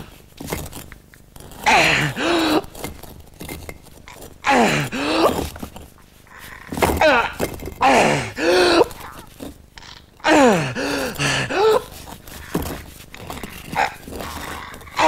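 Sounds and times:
man groaning with effort: 4.4s - 5.5s, 6.9s - 9.3s, 10.2s - 12.0s
breathy gasps: 10.3s - 12.0s.

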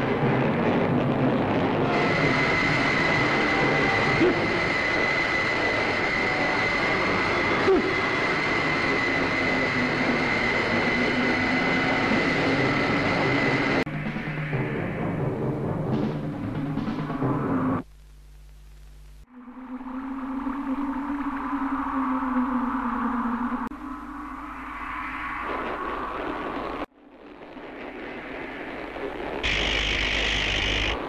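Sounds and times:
loud rushing hiss: 27.7s - 31.0s.

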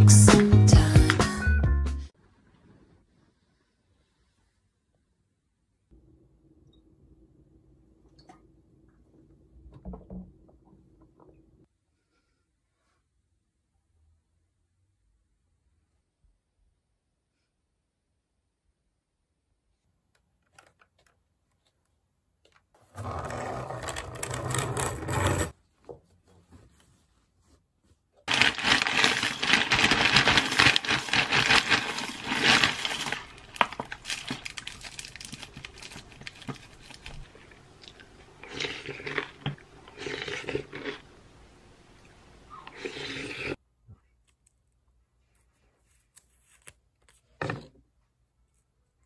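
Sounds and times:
cereal pouring into a wooden bowl: 28.3s - 37.1s
foil bag rustling: 28.3s - 37.6s.

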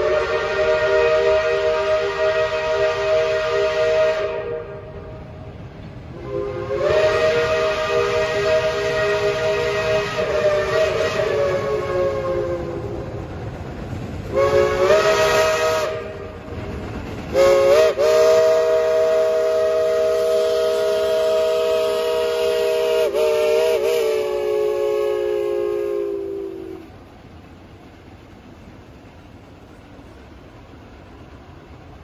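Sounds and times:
steam whistle blasts: 0.0s - 5.2s, 6.1s - 13.2s, 14.3s - 16.5s, 17.3s - 27.0s
train rumbling past: 0.0s - 32.0s.

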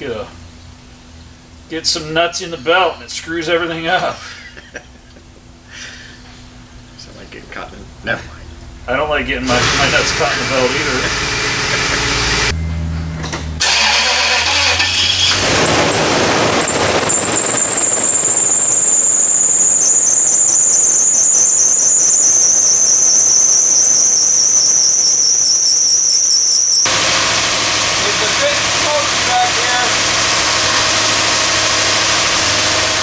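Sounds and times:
car engine running: 5.0s - 33.0s
drive belt squealing: 9.4s - 12.6s, 13.6s - 33.0s.

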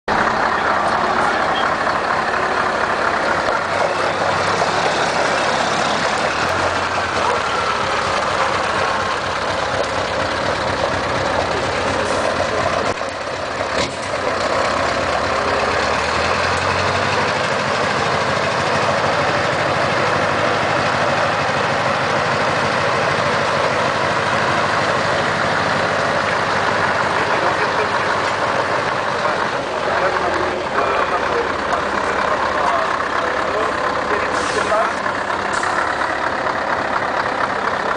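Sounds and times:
diesel engine rumbling: 0.1s - 37.9s.

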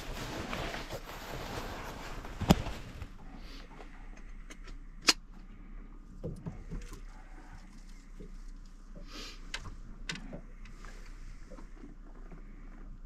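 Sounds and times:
water lapping against boat hull: 6.0s - 13.0s.

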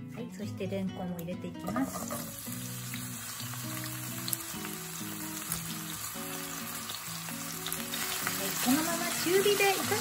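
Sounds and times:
background music with held notes: 0.0s - 10.0s
food sizzling in a pan: 1.6s - 10.0s.

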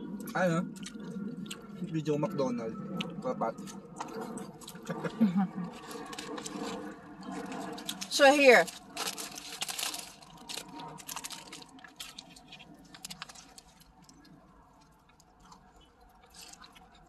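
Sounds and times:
person chewing food: 0.0s - 2.0s, 2.9s - 8.1s, 8.7s - 17.0s
small clicks and crackles: 5.7s - 17.0s.

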